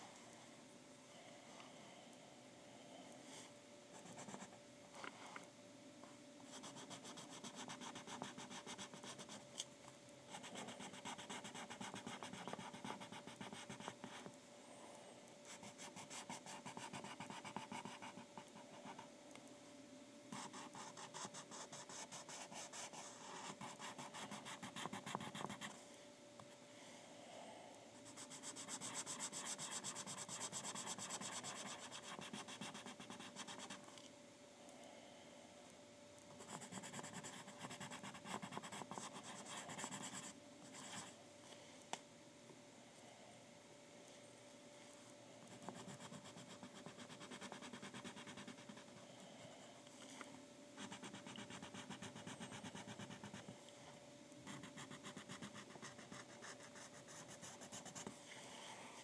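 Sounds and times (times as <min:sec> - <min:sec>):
pencil scratching on paper: 0:04.0 - 0:04.5, 0:06.5 - 0:09.4, 0:10.3 - 0:14.3, 0:15.5 - 0:19.1, 0:20.4 - 0:25.8, 0:28.1 - 0:33.8, 0:36.4 - 0:41.1, 0:45.5 - 0:49.0, 0:50.8 - 0:53.4, 0:54.5 - 0:58.2.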